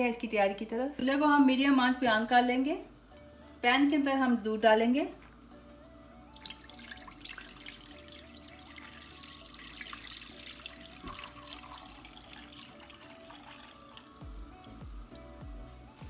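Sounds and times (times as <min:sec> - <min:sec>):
milk pouring into metal pan: 0:06.4 - 0:14.8.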